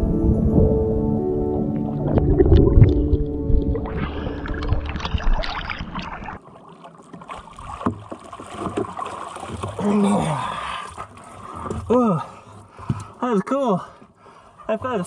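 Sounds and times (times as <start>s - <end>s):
water splashing against hull: 0.0s - 15.0s
person climbing out of water: 1.7s - 13.2s.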